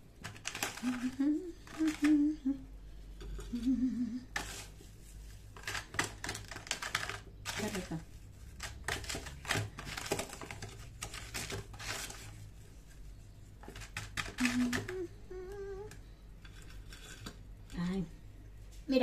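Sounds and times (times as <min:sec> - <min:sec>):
sugar scraping in plastic tub: 0:00.2 - 0:02.1, 0:04.3 - 0:14.9, 0:16.5 - 0:17.9
woman humming: 0:00.8 - 0:04.4, 0:14.4 - 0:16.0.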